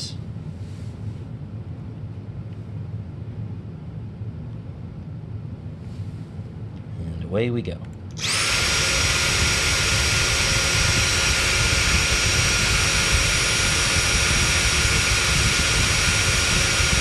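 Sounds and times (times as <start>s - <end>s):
vacuum motor whine: 8.1s - 17.0s.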